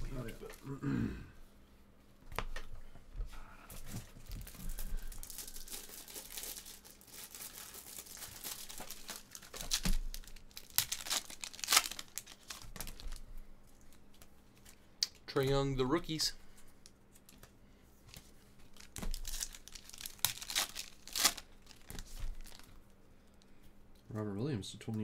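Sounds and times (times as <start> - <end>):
foil wrappers crinkling: 4.0 - 14.8, 18.1 - 22.9
foil tearing: 4.4 - 13.2, 18.8 - 22.7.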